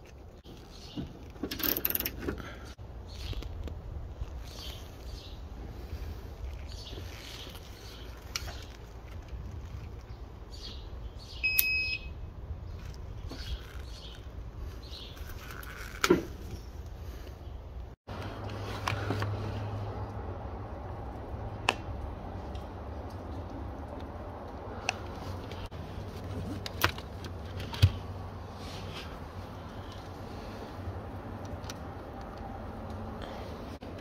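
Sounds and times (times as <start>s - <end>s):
handling clicks and rustle: 0.0s - 10.9s, 12.7s - 34.0s.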